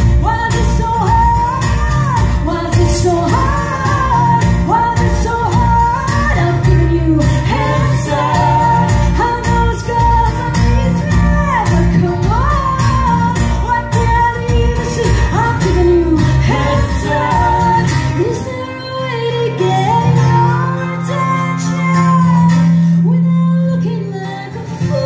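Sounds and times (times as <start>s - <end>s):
electric guitar: 0.0s - 25.0s
strummed acoustic guitars: 0.0s - 25.0s
woman singing: 0.0s - 25.0s.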